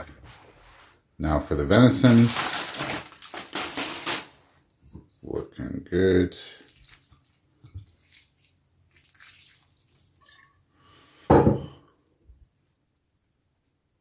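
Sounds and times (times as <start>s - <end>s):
liquid trickling and dripping: 6.4s - 10.6s.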